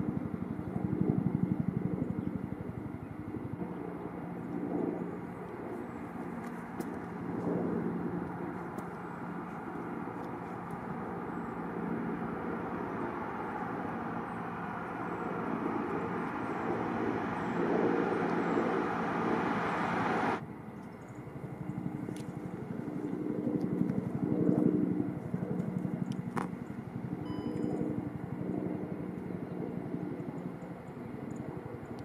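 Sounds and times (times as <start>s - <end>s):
low pulsing engine hum: 0.0s - 32.0s
vehicle engine and road noise: 5.6s - 20.4s.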